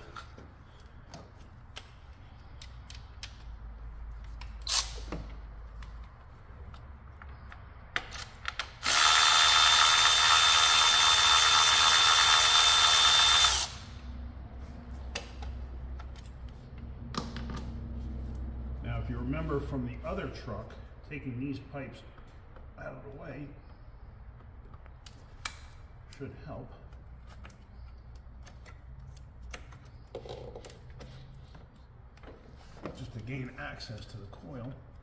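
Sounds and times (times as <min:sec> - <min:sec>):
power tool motor whirring: 0:08.8 - 0:13.9.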